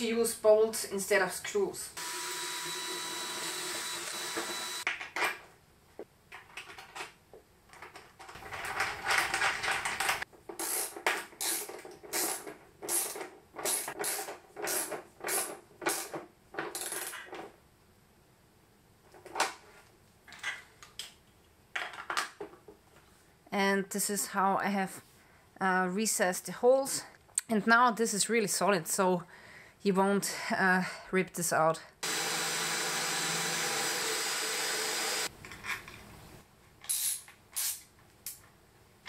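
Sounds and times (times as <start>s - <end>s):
cordless drill running: 2.0s - 4.9s, 32.0s - 35.3s.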